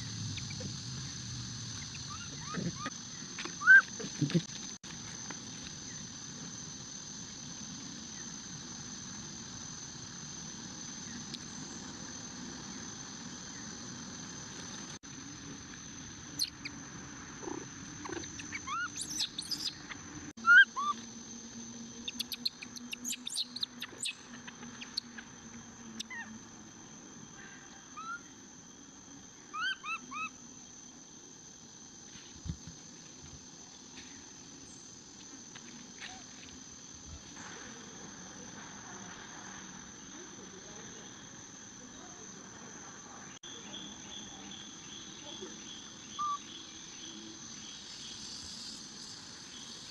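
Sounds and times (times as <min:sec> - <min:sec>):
baby monkey squeaking: 0:03.6 - 0:03.9, 0:18.5 - 0:19.7, 0:20.4 - 0:21.0, 0:22.1 - 0:24.2.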